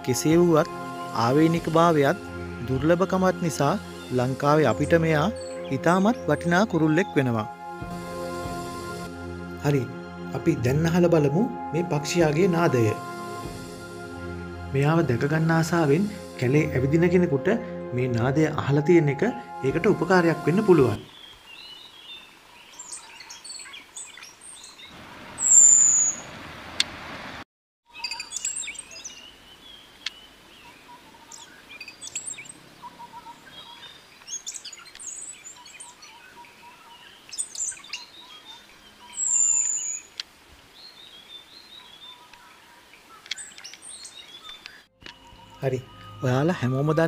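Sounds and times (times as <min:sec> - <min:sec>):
bird chirps: 0:21.0 - 0:26.3, 0:27.9 - 0:40.2, 0:40.8 - 0:46.9
thrush whistling song: 0:24.6 - 0:26.3, 0:37.3 - 0:40.1, 0:43.3 - 0:47.0.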